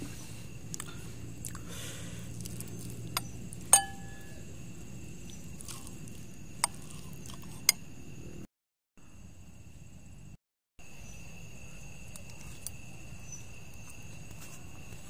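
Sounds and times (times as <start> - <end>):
night insects chirring: 0.0 - 15.0
metal spoon clinking against bowl: 3.7 - 4.4.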